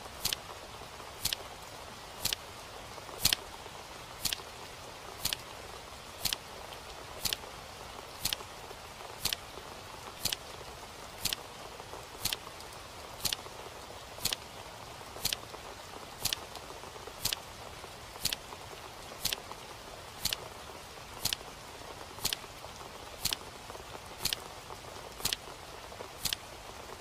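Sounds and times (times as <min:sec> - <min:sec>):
steady hiss: 0:00.0 - 0:27.0
clock ticking: 0:00.2 - 0:00.4, 0:02.2 - 0:02.4, 0:07.2 - 0:07.4, 0:08.2 - 0:08.4, 0:09.2 - 0:09.4, 0:10.2 - 0:10.4, 0:11.2 - 0:11.4, 0:12.2 - 0:12.4, 0:13.2 - 0:13.4, 0:14.2 - 0:14.4, 0:15.2 - 0:15.4, 0:16.2 - 0:16.5, 0:17.2 - 0:17.4, 0:18.2 - 0:18.4, 0:19.2 - 0:19.4, 0:20.2 - 0:20.4, 0:21.2 - 0:21.4, 0:22.2 - 0:22.4, 0:23.2 - 0:23.4, 0:24.2 - 0:24.4, 0:25.2 - 0:25.4, 0:26.2 - 0:26.4.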